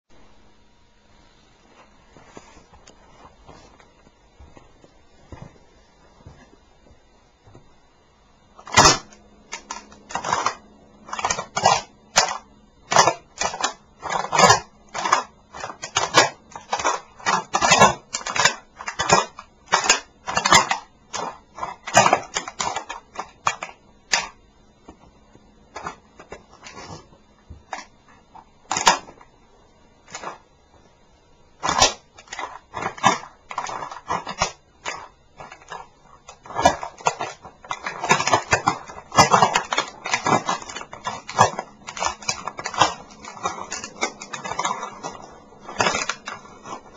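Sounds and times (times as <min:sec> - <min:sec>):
plastic model cracking underfoot: 0:08.6 - 0:24.4, 0:28.7 - 0:29.2, 0:30.1 - 0:30.4, 0:31.6 - 0:46.9.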